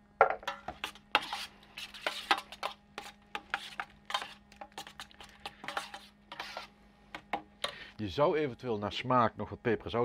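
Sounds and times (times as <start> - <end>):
spoon scraping steel tray: 0.5 - 7.8
spoon stirring dressing: 0.5 - 8.0.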